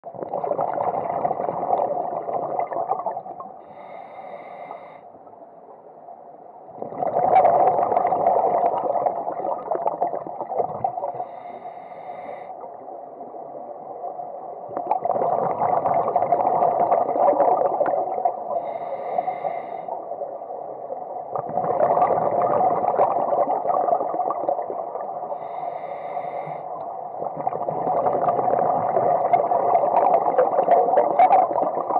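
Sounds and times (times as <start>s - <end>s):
bubbling rush: 0.0s - 3.3s, 6.8s - 11.2s, 14.7s - 18.4s, 21.3s - 25.0s, 27.2s - 31.9s
scuba regulator breathing underwater: 3.6s - 5.1s, 10.5s - 12.8s, 18.5s - 20.2s, 25.2s - 30.7s
inhale with thin whistle: 3.6s - 5.2s, 11.2s - 12.7s, 18.6s - 20.0s, 25.3s - 26.7s.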